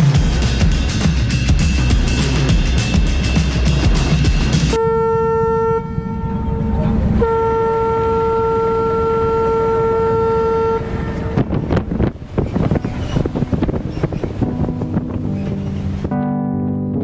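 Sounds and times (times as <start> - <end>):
low engine rumble: 0.0 - 16.2
horn sounding: 1.7 - 11.9.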